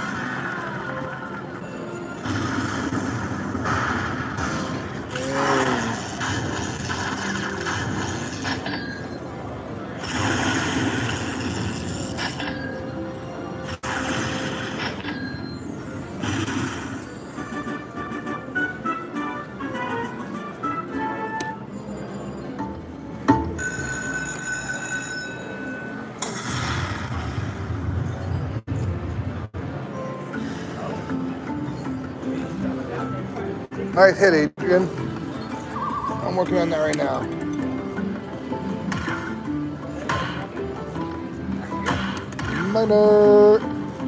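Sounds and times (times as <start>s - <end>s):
noisy burst: 2.2s - 8.6s.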